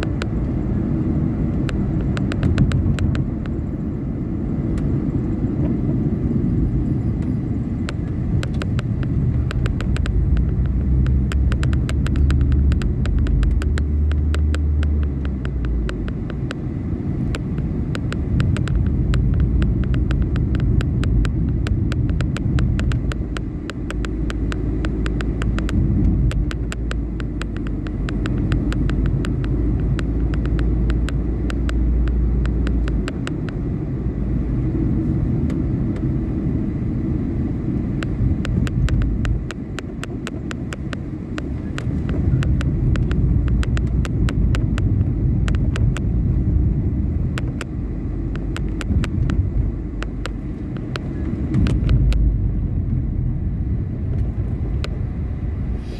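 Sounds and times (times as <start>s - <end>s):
car engine and tyre rumble: 0.0s - 55.9s
short sharp ticks: 7.9s - 16.6s, 17.3s - 33.6s.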